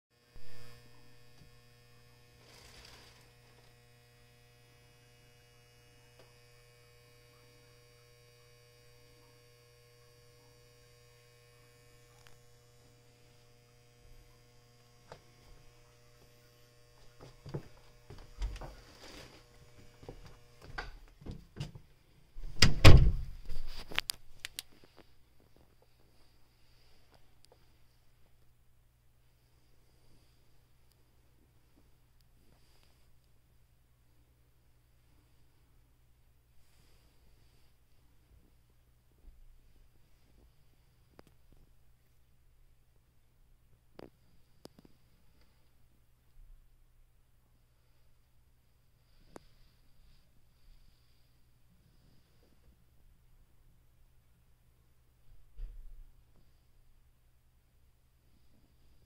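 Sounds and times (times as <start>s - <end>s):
electrical mains hum: 0.2s - 59.0s
short thump: 22.4s - 23.7s.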